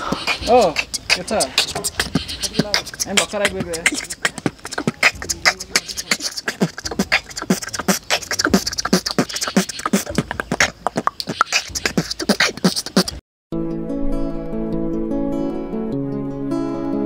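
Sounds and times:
beatboxed deep kick drum: 0:00.0 - 0:13.2
beatboxed hissing hi-hat: 0:00.0 - 0:13.2
beatboxing mouth clicks: 0:00.0 - 0:13.2.

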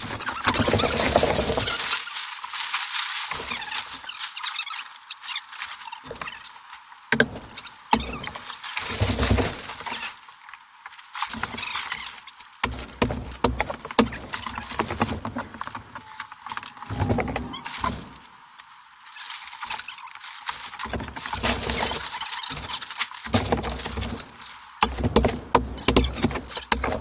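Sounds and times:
plastic sheeting crackling: 0:00.0 - 0:27.0
sharp clicks and knocks: 0:07.1 - 0:09.6, 0:20.8 - 0:27.0.

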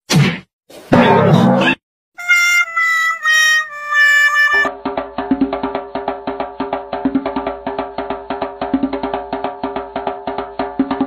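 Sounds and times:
fast tune of clipped notes: 0:02.2 - 0:04.7.

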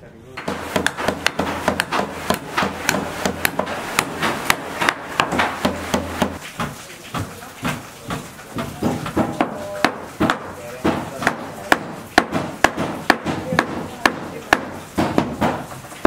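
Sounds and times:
hammer striking steel rebar: 0:00.4 - 0:15.8.

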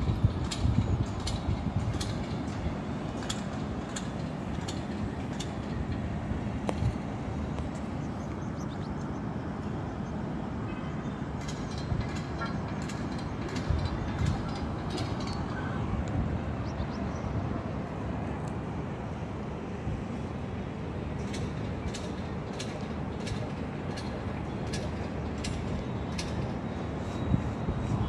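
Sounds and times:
outdoor background noise: 0:00.0 - 0:28.0.

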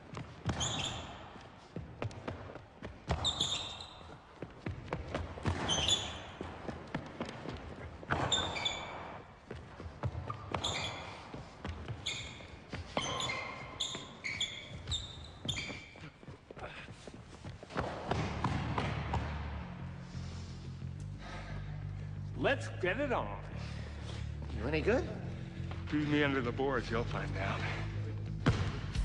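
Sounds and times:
sneaker squeaks: 0:00.0 - 0:19.4.

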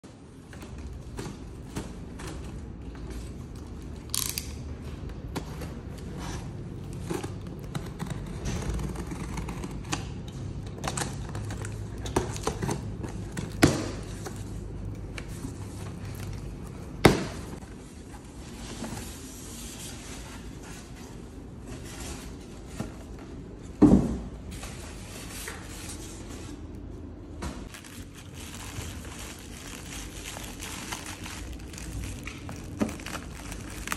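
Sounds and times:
cardboard scraping and rustling: 0:05.4 - 0:10.2.

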